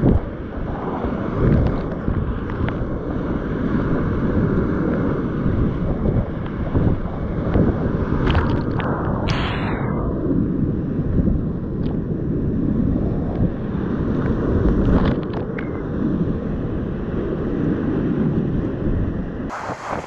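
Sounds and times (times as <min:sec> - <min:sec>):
water splashing over camera: 0:07.5 - 0:09.5.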